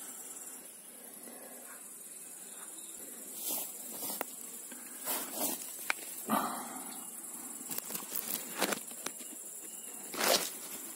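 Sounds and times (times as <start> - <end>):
steady high hiss: 0.0 - 10.9
grass and leaves rustling: 2.5 - 6.6, 7.4 - 10.9.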